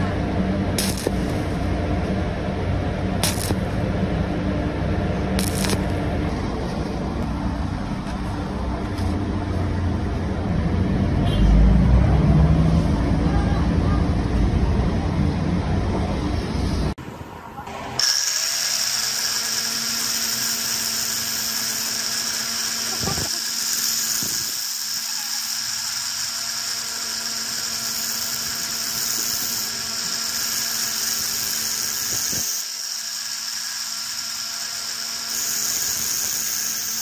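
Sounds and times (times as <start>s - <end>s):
angle grinder whining: 0.8s - 1.7s, 3.2s - 3.7s, 5.4s - 6.8s, 18.0s - 37.0s.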